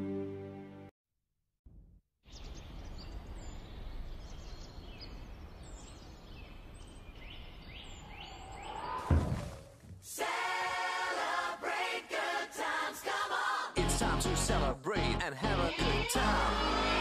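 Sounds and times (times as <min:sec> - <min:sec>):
loud thump with a whoosh: 0:08.8 - 0:10.1.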